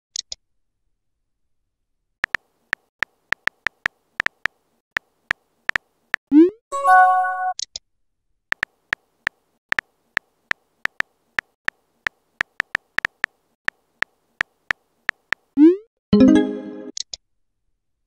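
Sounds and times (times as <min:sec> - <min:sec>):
keyboard tapping clicks: 0:02.2 - 0:05.9, 0:08.5 - 0:09.0, 0:09.7 - 0:11.8, 0:12.4 - 0:15.5.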